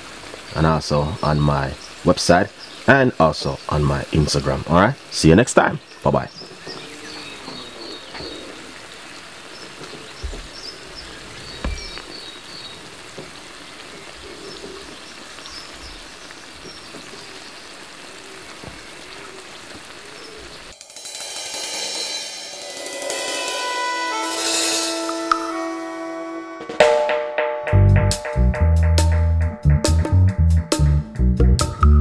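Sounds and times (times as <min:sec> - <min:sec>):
birds chirping: 0:00.0 - 0:20.8
oil sizzling in a frying pan: 0:06.5 - 0:23.4
music with drums and cymbals: 0:20.7 - 0:32.0.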